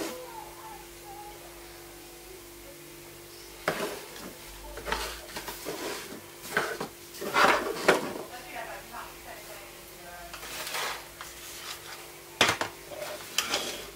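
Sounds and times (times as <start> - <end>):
faint steady hum: 0.0 - 13.9.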